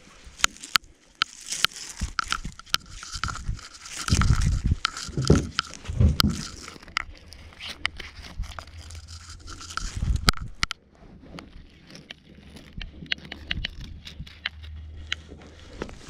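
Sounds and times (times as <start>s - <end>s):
net mesh crackling and clicking: 0.3s - 10.8s, 11.4s - 16.0s
dull low thumps: 4.1s - 6.6s.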